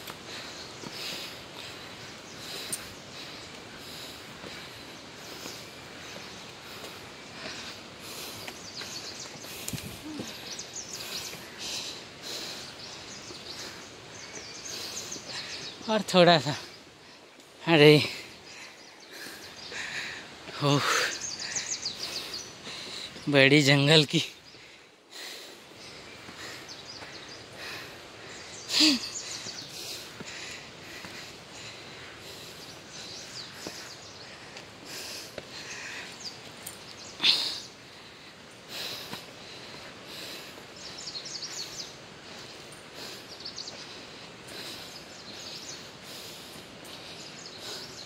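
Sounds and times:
forest ambience: 0.0 - 48.0
person grunting: 28.7 - 29.1.

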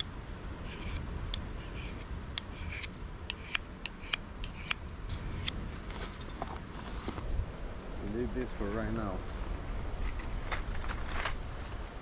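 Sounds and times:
knife scraping on sharpening stone: 0.6 - 1.0, 1.6 - 5.6
sharp metallic ticks: 2.3 - 5.6.

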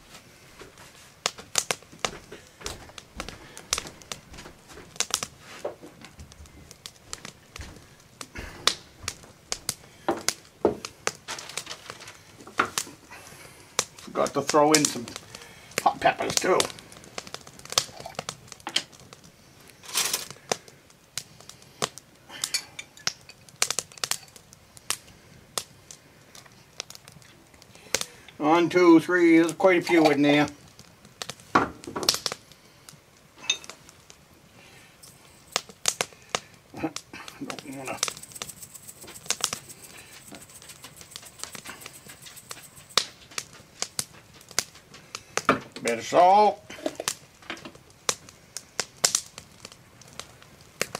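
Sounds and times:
glass and metal clinks: 33.4 - 33.7
scraping rustle: 37.5 - 45.0
salt shaken into a hand: 37.6 - 43.0.

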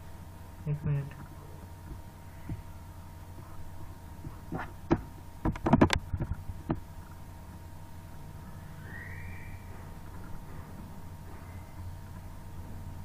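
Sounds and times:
electrical hum: 0.0 - 13.0.

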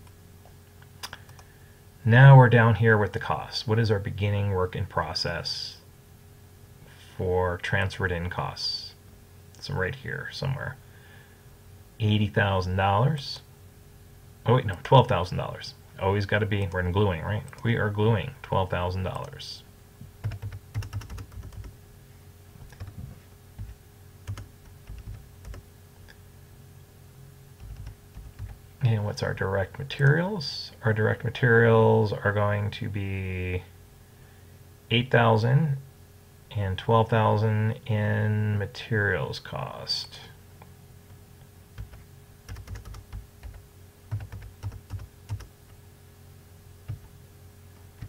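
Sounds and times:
faint low hum: 0.0 - 48.0
computer keyboard typing: 20.2 - 21.7, 22.7 - 23.0, 23.6 - 25.6, 27.6 - 28.6, 41.8 - 45.5.

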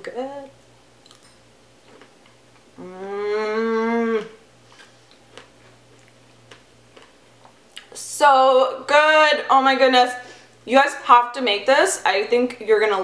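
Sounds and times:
woman humming mmm: 2.8 - 4.4.

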